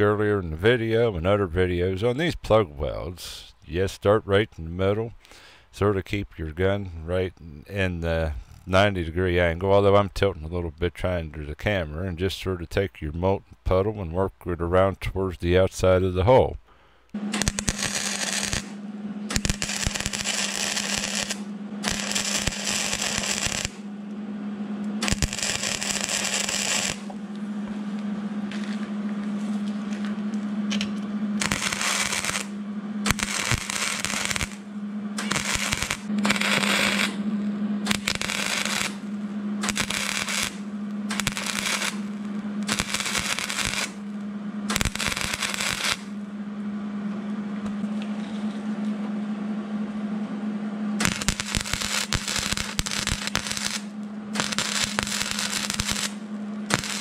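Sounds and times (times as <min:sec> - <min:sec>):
steady hum: 0:00.0 - 0:57.0
welding arc crackling: 0:17.1 - 0:24.1, 0:24.8 - 0:27.7, 0:28.4 - 0:46.1, 0:51.0 - 0:57.0.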